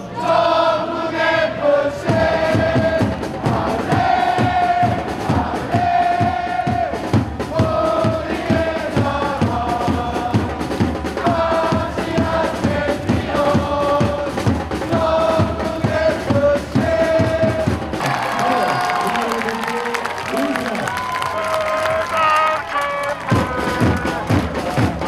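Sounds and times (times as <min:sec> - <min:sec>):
crowd chanting in unison: 0:00.0 - 0:18.6
steady drum beat: 0:02.0 - 0:19.2, 0:21.0 - 0:25.0.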